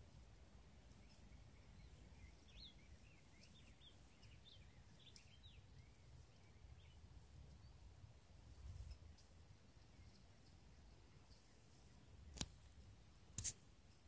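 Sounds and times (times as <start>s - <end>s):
songbird singing: 0.0s - 13.3s.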